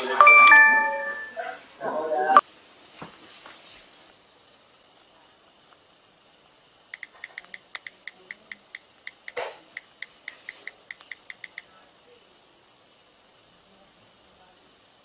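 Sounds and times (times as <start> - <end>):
phone keyboard clicks: 7.0 - 11.7.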